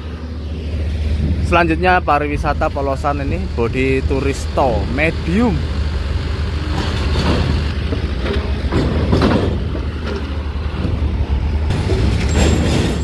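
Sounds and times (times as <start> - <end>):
bus engine running: 0.0 - 13.0
knocks on steel ramp: 6.8 - 9.9, 11.7 - 13.0.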